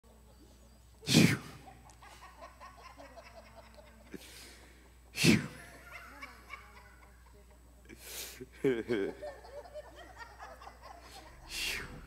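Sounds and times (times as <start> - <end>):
congregation murmuring and laughing: 0.9 - 12.0
loud breath-like blasts: 1.1 - 1.6.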